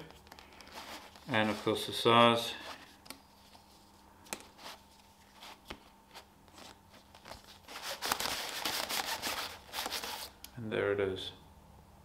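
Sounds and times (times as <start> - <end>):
cellophane crinkling: 6.6 - 10.4.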